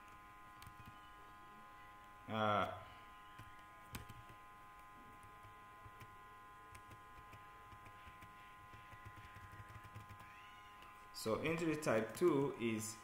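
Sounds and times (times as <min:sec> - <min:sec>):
low electrical hum: 0:00.0 - 0:13.0
keyboard typing clicks: 0:03.4 - 0:04.4, 0:06.7 - 0:10.9.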